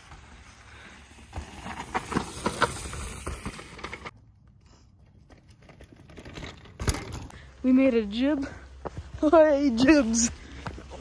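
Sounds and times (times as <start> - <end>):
bike tyres rolling over leaves: 0.0 - 4.2.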